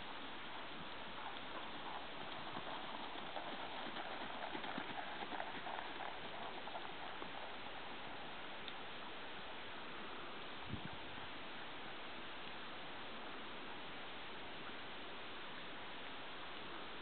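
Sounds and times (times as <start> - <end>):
steady hiss: 0.0 - 17.0
horse hoofbeats on sand: 0.8 - 8.4.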